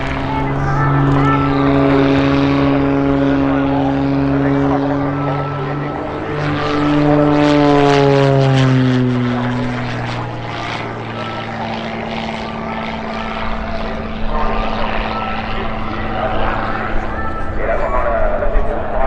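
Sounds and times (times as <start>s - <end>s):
propeller plane engine drone: 0.0s - 19.0s.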